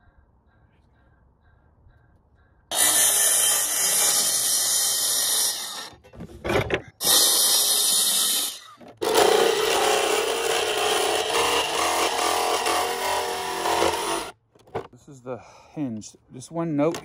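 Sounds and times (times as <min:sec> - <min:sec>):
power tool cutting plastic panel: 0:02.7 - 0:05.9, 0:07.0 - 0:14.3.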